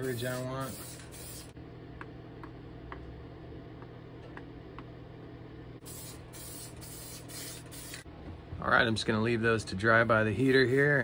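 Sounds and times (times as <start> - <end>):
spray paint can hissing: 0.0 - 1.6, 5.8 - 8.0.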